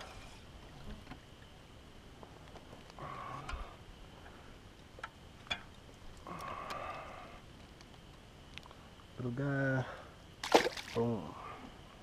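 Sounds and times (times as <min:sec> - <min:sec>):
faint fish splashing: 0:10.4 - 0:11.4.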